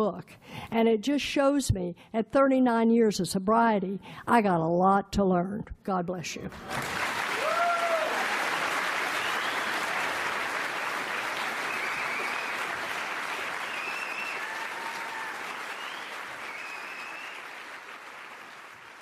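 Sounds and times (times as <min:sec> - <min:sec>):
audience applauding: 0:06.5 - 0:19.0.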